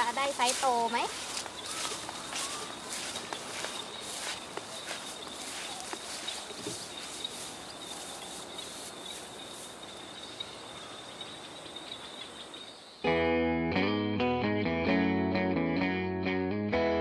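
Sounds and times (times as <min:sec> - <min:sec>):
insects chirping: 0:00.0 - 0:13.1
guitar music: 0:13.0 - 0:17.0.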